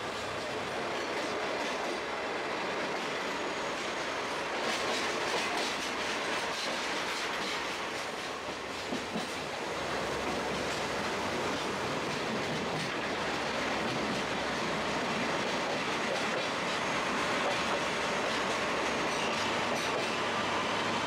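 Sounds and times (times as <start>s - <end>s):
train rumble: 0.0s - 21.0s
wheels clacking over rail joints: 10.2s - 20.4s.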